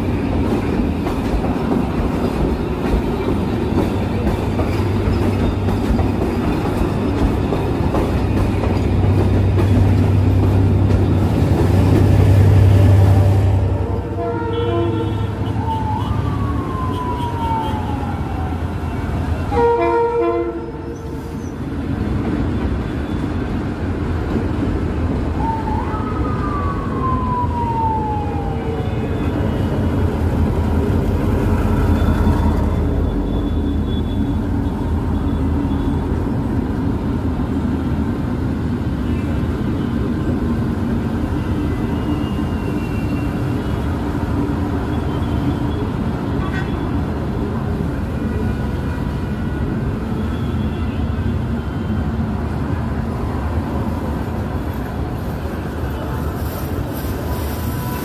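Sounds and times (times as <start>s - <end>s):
locomotive engine and wheels rumbling: 0.0s - 58.0s
train horn blast: 12.8s - 15.6s, 19.5s - 21.0s
siren wailing: 15.5s - 19.2s, 25.4s - 29.7s.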